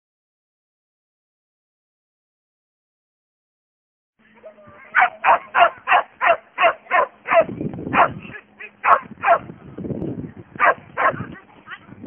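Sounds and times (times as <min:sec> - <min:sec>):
dog barking rapidly: 0:04.9 - 0:09.5, 0:10.6 - 0:11.3.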